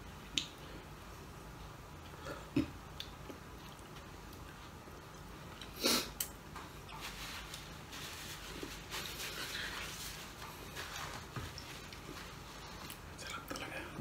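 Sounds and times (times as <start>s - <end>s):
paper napkin rustling: 7.0s - 13.1s.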